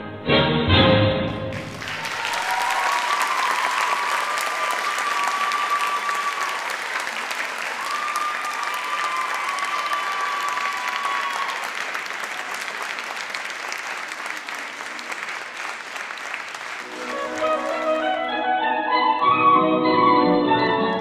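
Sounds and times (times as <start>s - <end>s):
orchestral music: 0.0s - 1.8s, 16.8s - 21.0s
audience applauding: 1.3s - 19.4s.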